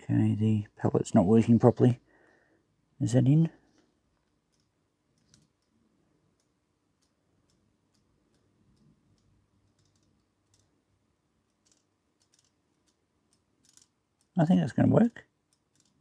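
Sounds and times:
light clicks of clock parts: 3.6s - 10.8s, 11.4s - 16.0s.

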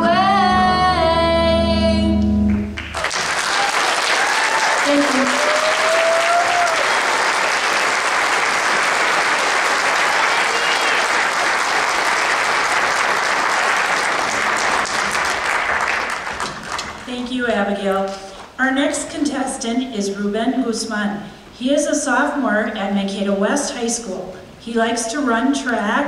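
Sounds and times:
audience applauding: 2.5s - 17.1s.

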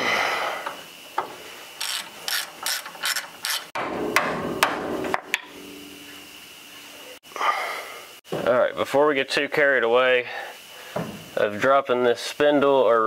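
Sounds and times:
socket ratchet clicking: 1.8s - 3.7s.

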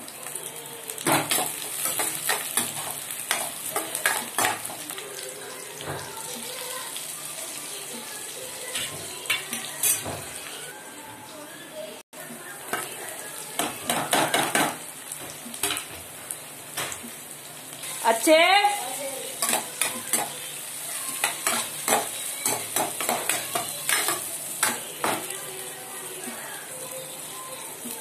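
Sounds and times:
vegetables sizzling in a pan: 0.0s - 28.0s
spatula clacking on metal: 1.1s - 4.8s, 13.6s - 14.8s, 19.4s - 20.5s, 21.2s - 25.3s.

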